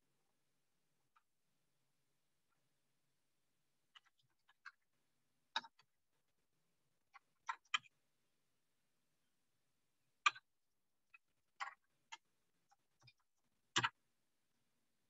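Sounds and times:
computer keyboard and mouse clicks: 0:05.5 - 0:05.9, 0:07.1 - 0:07.9, 0:11.6 - 0:14.0.

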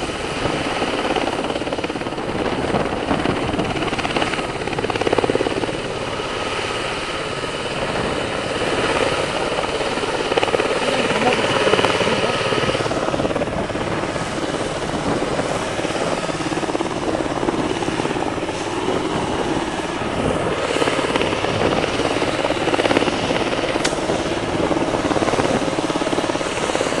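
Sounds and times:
helicopter rotor beating: 0:00.0 - 0:27.0
helicopter turbines running: 0:00.0 - 0:27.0.

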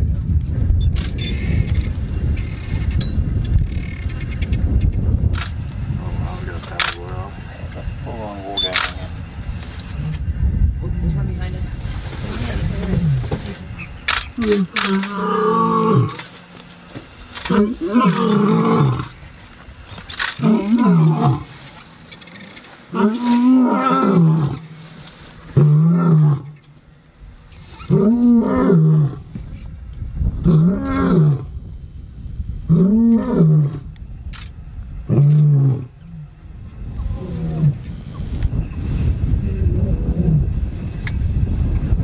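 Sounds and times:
lion roaring: 0:14.4 - 0:16.3, 0:17.4 - 0:19.2, 0:20.3 - 0:21.6, 0:22.9 - 0:24.8, 0:25.5 - 0:26.6, 0:27.7 - 0:29.3, 0:30.4 - 0:31.5, 0:32.7 - 0:33.9, 0:35.1 - 0:36.3, 0:37.0 - 0:37.9.

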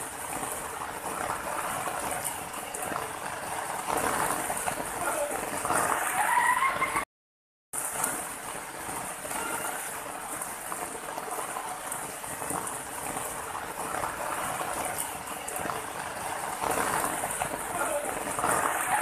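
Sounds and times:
water splashing over rocks: 0:07.8 - 0:19.0.

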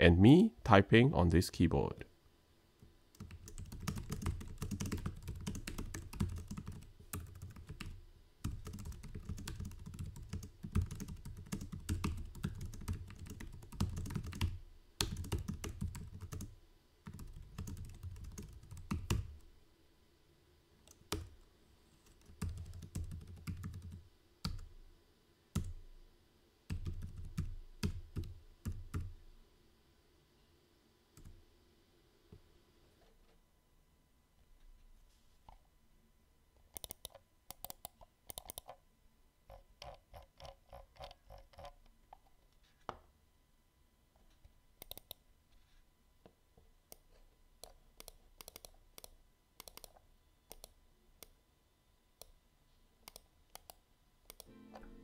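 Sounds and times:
keyboard typing: 0:03.2 - 0:16.5, 0:17.1 - 0:19.4, 0:22.0 - 0:24.7, 0:26.7 - 0:29.1, 0:36.8 - 0:38.8, 0:44.8 - 0:45.2, 0:47.6 - 0:50.8, 0:53.1 - 0:54.9.

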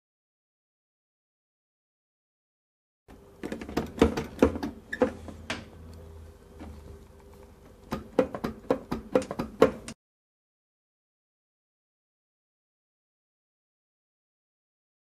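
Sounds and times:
faint steady hum: 0:03.1 - 0:08.9
dishwasher door knocking: 0:07.9 - 0:09.9.

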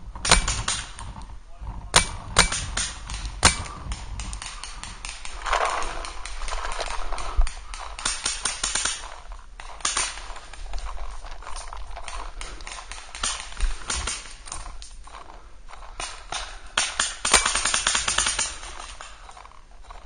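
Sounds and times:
paintball markers firing: 0:00.2 - 0:01.3, 0:01.9 - 0:19.3.

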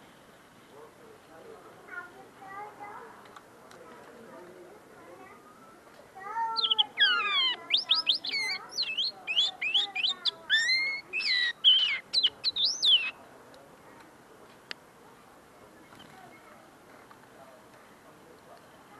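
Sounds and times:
linnet twittering song: 0:06.4 - 0:13.2.

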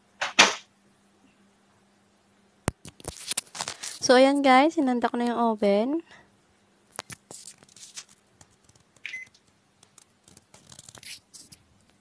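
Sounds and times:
faint oven hum: 0:00.0 - 0:12.0
short oven beep: 0:09.1 - 0:09.3.

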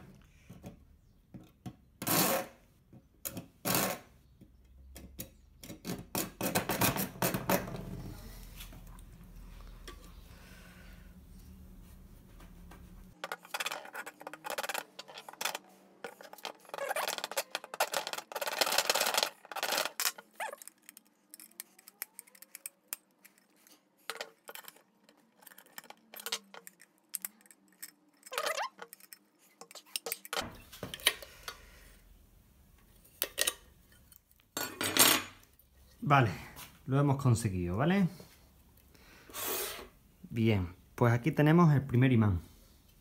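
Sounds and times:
rapid metal scraping and clinking: 0:13.1 - 0:30.5.

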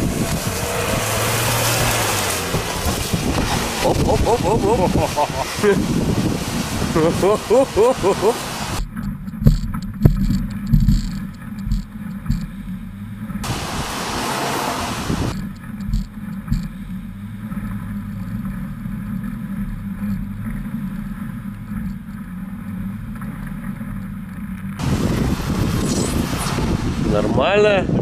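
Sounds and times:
loud rushing noise: 0:00.0 - 0:08.8, 0:13.4 - 0:15.4, 0:24.8 - 0:27.3
knocks and thumps from rough ride: 0:00.0 - 0:27.2
suv engine running: 0:00.0 - 0:27.2.

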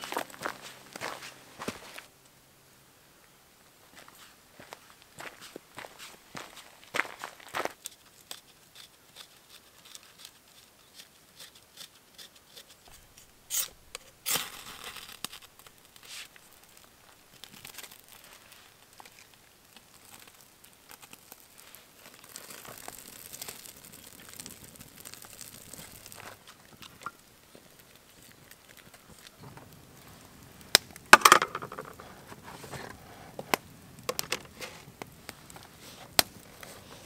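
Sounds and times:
faint hiss: 0:00.0 - 0:37.0
small crackles: 0:03.9 - 0:37.0
paper tearing and crumpling: 0:08.4 - 0:19.3.

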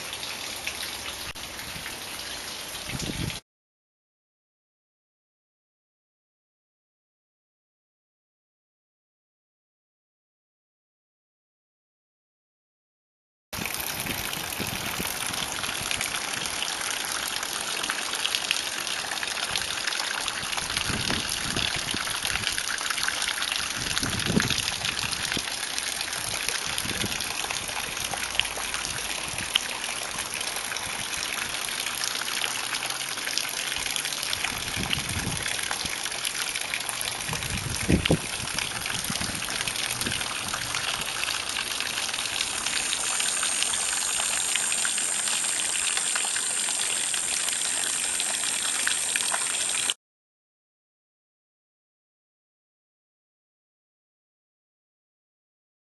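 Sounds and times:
water gushing through channel: 0:13.6 - 0:50.0.

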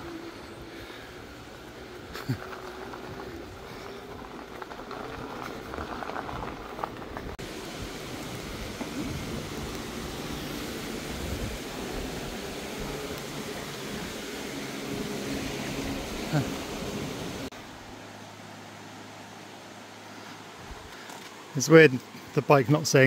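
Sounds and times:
bicycle tyres rattling on dirt: 0:00.0 - 0:17.5
bicycle tyres rolling on pavement: 0:00.0 - 0:17.6.

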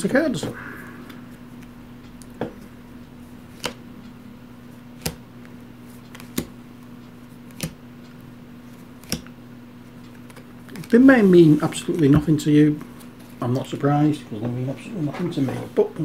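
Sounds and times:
low hum: 0:00.0 - 0:04.9.

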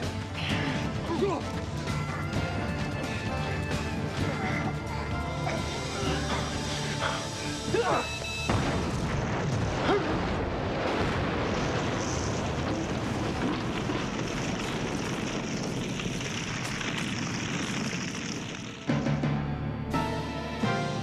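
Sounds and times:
heavy rumble of fire and debris: 0:00.0 - 0:07.7, 0:08.4 - 0:19.0
large explosion blast: 0:08.5 - 0:19.0.

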